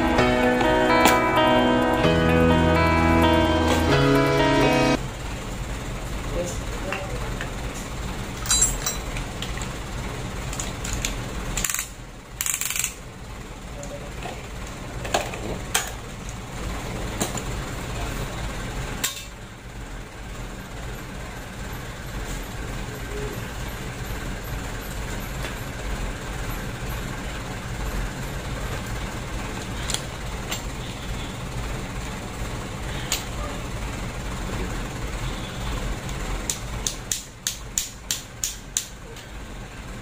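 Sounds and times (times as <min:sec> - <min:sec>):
low mechanical hum: 0:00.0 - 0:40.0
ratchet wrench clicking: 0:10.5 - 0:13.1.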